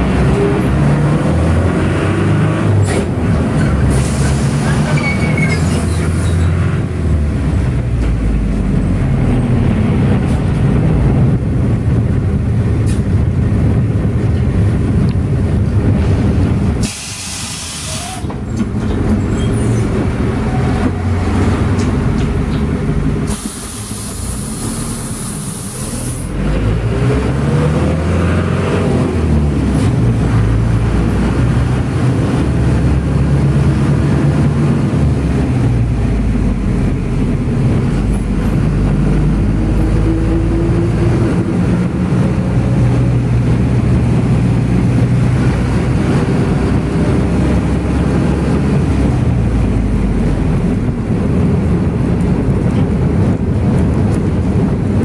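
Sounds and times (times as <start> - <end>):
minibus engine droning: 0.0 - 55.0
air hissing: 16.8 - 18.3, 23.2 - 26.3.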